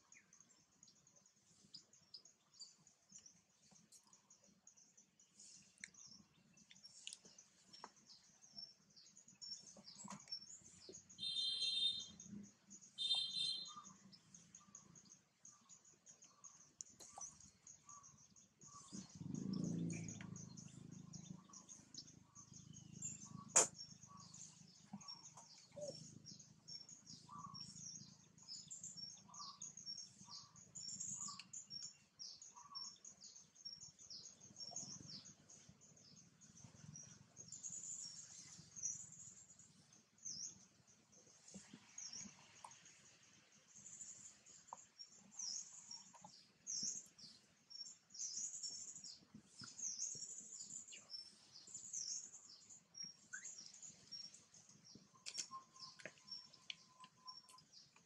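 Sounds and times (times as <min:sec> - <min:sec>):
birds chirping: 0:00.0 - 0:58.0
sharp click: 0:23.5 - 0:23.8.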